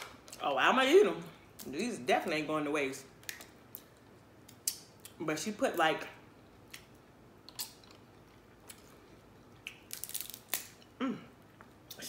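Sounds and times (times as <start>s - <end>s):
crab shells cracking: 3.2s - 5.2s, 6.6s - 8.8s, 9.6s - 11.0s.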